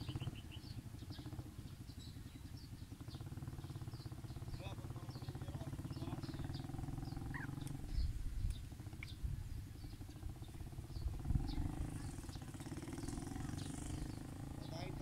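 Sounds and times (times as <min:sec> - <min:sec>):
small birds chirping: 0:00.0 - 0:15.0
pulsing low rumble: 0:03.6 - 0:15.0.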